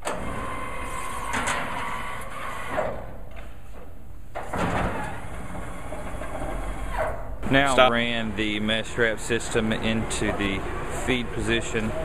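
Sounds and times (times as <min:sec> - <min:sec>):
machine clunks: 0:04.4 - 0:05.3.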